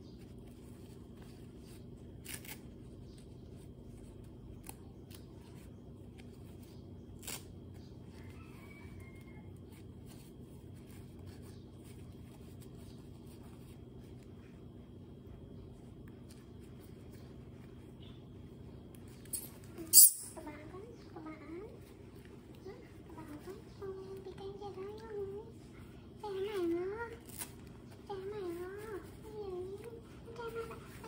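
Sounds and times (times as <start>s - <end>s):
steady low hum: 0.0s - 31.0s
plastic diaper crackling: 27.0s - 28.0s.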